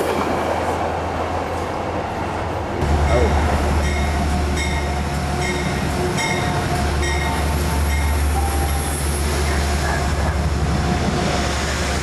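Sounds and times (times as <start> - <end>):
diesel locomotive engine drone: 0.0 - 12.0
locomotive bell ringing: 2.8 - 9.1.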